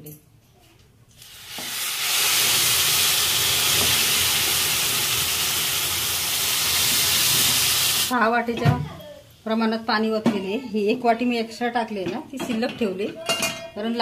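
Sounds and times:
water sizzling in hot pan: 1.2s - 8.2s.

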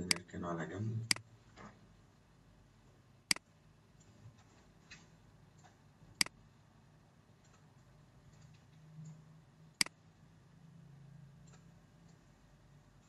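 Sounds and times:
computer mouse clicking: 5.6s - 6.4s.

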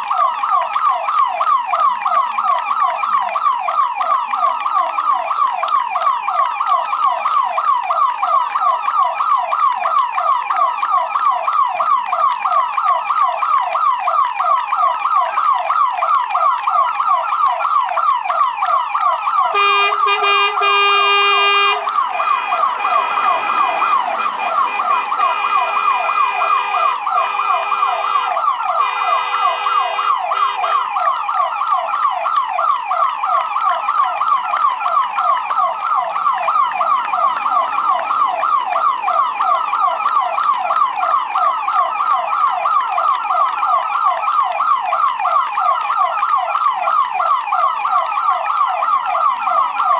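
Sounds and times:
siren yelping: 0.0s - 49.9s
vehicle horn: 19.6s - 21.9s, 28.1s - 30.8s.

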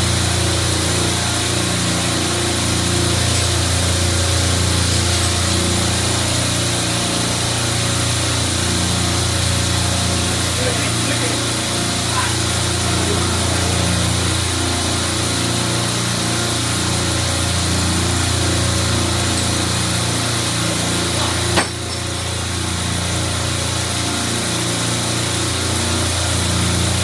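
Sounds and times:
refrigeration machinery hum: 0.0s - 27.0s
sharp knock on compressor: 21.2s - 22.1s.

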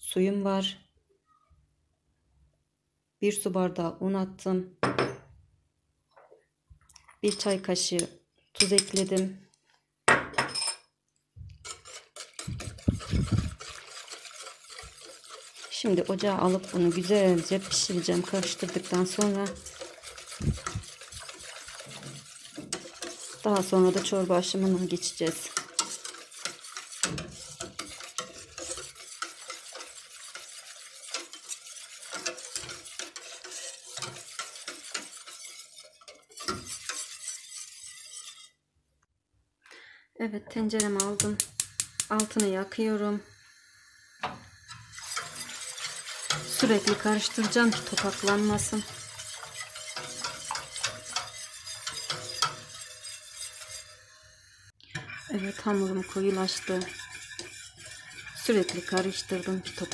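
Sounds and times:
wire whisk clicking and scraping pot: 7.2s - 9.3s, 11.5s - 38.6s, 40.7s - 42.6s, 44.2s - 54.2s, 54.8s - 59.9s.

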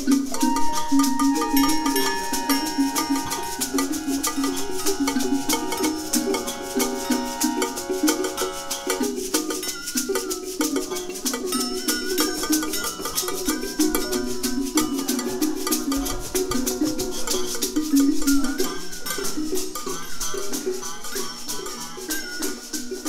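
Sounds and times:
long held higher notes: 0.0s - 9.3s
plucked string figure: 0.0s - 9.3s
hand shaker rhythm: 0.0s - 23.0s.

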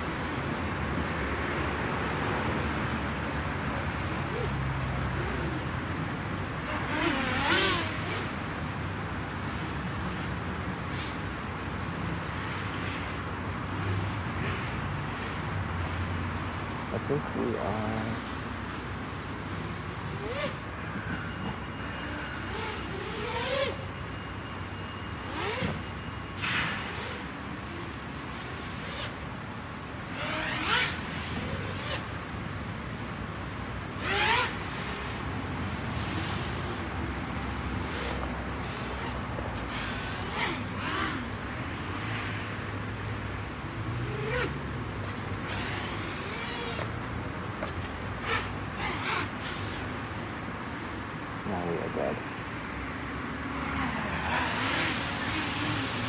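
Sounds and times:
road traffic: 0.0s - 56.0s
drone motor whine: 20.0s - 24.0s.

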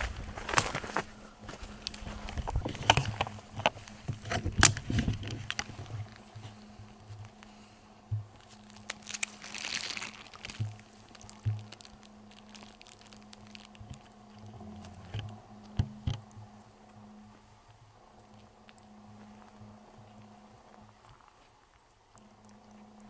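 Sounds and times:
clothing and gear rustling: 0.0s - 15.4s
footsteps crunching on dirt trail: 0.0s - 22.2s
faint low hum: 0.0s - 23.0s.

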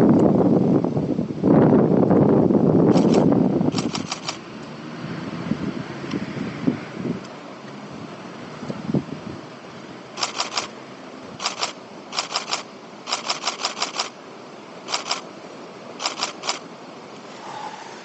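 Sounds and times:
camera shutter bursts: 2.9s - 4.4s, 10.2s - 10.7s, 11.4s - 14.2s, 14.9s - 15.3s, 16.0s - 16.6s.

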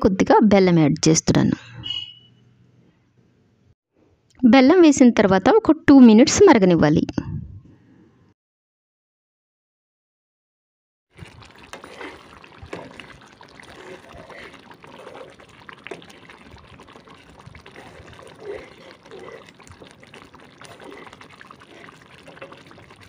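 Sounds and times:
gravy bubbling and popping: 11.1s - 23.0s
spoon stirring gravy: 11.2s - 23.0s.

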